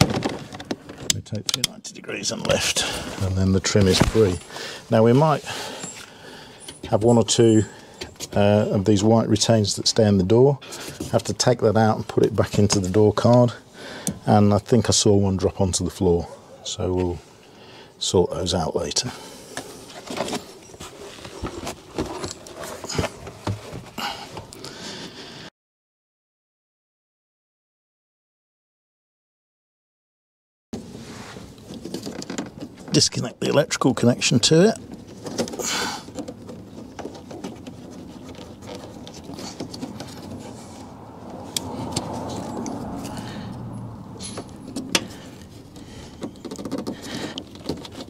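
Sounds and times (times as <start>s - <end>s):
scraping and rustling of wire: 19.3s - 24.6s, 30.8s - 48.0s
plastic trim knocks and scrapes: 45.8s - 48.0s.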